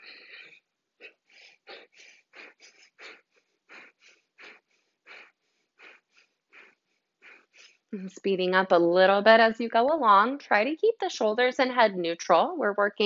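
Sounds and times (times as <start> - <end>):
forceful nasal exhales: 1.0 - 7.9.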